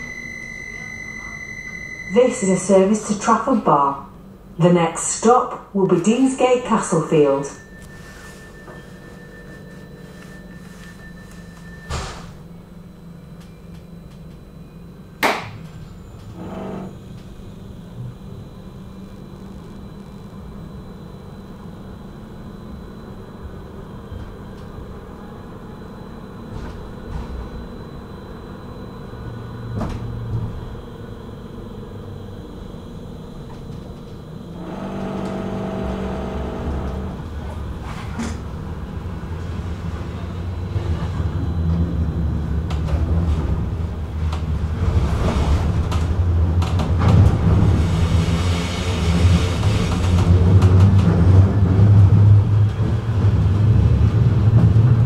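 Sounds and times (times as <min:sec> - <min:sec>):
thin steady tone: 0:00.0 - 0:03.4
tram electrical hum: 0:00.0 - 0:55.0
tram motors: 0:00.0 - 0:55.0.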